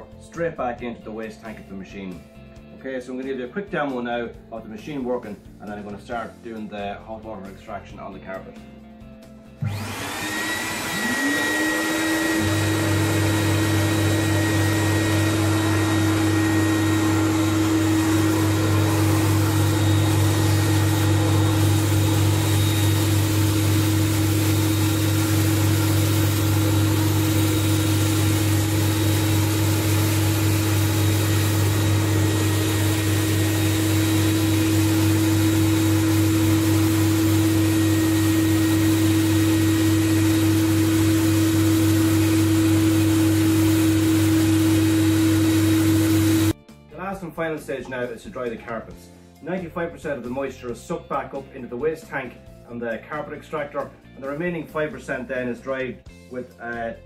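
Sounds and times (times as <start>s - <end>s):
vacuum motors whining: 9.6s - 46.5s.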